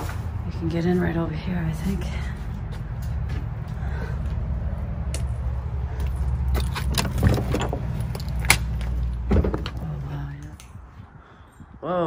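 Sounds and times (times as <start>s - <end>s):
wind buffeting microphone: 0.3s - 12.0s
footsteps crunching over debris: 5.2s - 9.9s.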